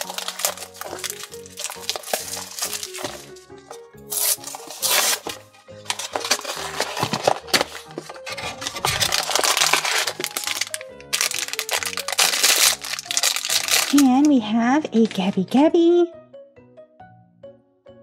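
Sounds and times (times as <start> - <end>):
cardboard box tearing: 0.0 - 3.3, 4.1 - 14.0
packaging rustling and crinkling: 0.0 - 14.3.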